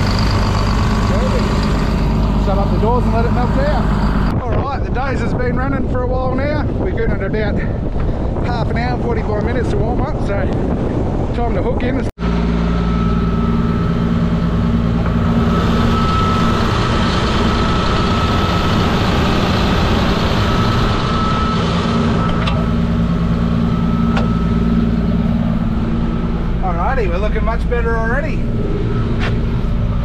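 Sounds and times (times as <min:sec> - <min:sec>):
bulldozer diesel engine running: 0:00.0 - 0:05.5, 0:12.2 - 0:30.0
thin high whine: 0:12.2 - 0:30.0.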